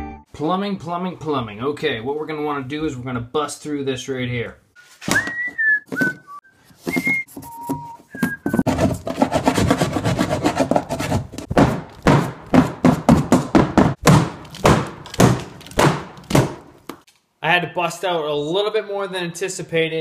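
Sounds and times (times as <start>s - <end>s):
marker squeaking on panel: 5.1s - 11.3s
hand saw rasping: 8.6s - 11.5s.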